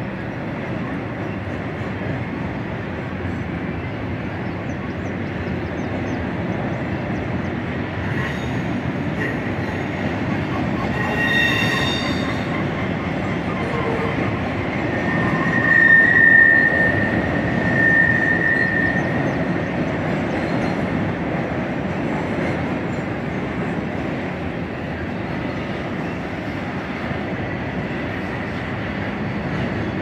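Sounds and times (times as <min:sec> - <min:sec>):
freight train rumbling over bridge: 0:00.0 - 0:30.0
high wheel squeal: 0:10.7 - 0:19.3.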